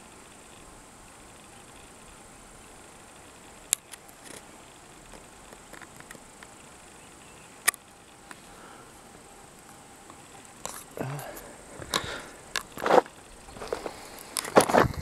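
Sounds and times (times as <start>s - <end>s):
faint outdoor hiss: 0.0s - 15.0s
sharp camera clicks: 3.6s - 4.5s, 5.1s - 8.4s.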